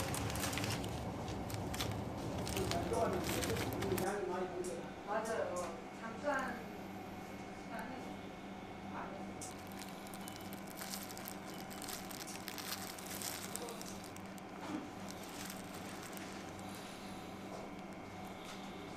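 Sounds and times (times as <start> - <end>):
plastic gloves crinkling: 0.0 - 4.1, 9.4 - 18.4
low electrical hum: 0.0 - 18.9.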